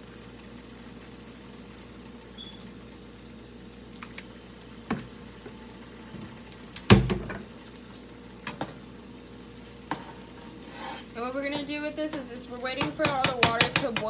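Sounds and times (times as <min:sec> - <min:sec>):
faint steady hum: 0:00.0 - 0:14.0
utensils knocking against pans: 0:11.5 - 0:14.0.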